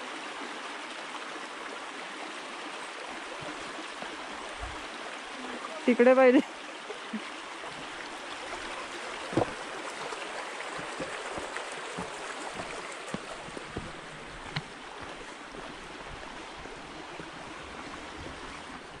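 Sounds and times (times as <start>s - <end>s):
stream rushing over rocks: 0.0s - 19.0s
short knocks: 9.3s - 9.6s.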